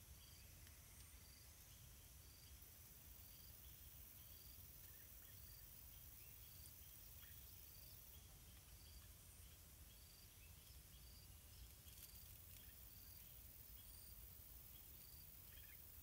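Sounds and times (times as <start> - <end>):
faint high chirps: 3.2 - 16.0.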